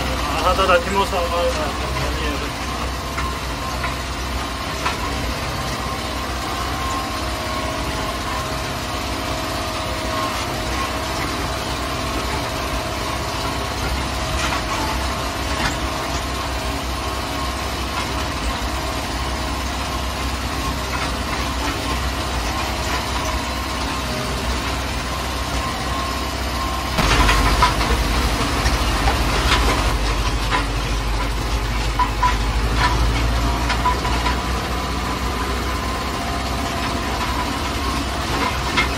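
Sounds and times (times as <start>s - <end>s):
tractor diesel engine running: 0.0s - 38.9s
knocks and rattles: 27.0s - 38.9s.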